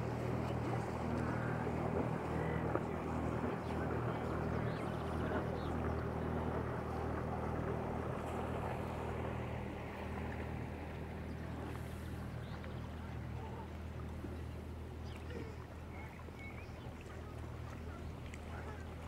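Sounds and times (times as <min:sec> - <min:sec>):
motorboat engine humming: 0:00.0 - 0:19.0.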